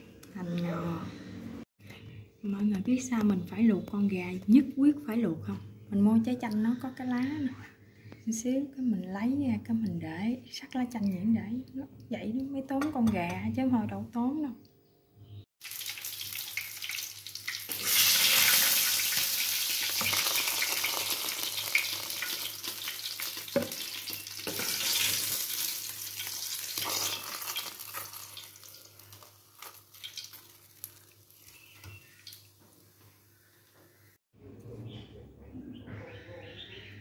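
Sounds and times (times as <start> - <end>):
food sizzling in hot fat: 15.6 - 33.3.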